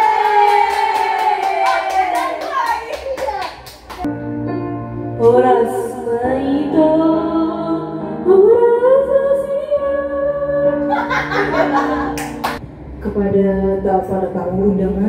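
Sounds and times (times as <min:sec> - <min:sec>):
woman singing karaoke: 0:05.2 - 0:10.9, 0:13.0 - 0:15.0.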